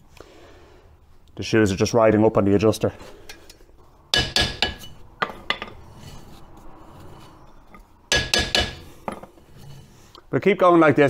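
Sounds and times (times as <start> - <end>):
hammer tapping metal brake drum: 4.2 - 5.7, 8.1 - 8.9.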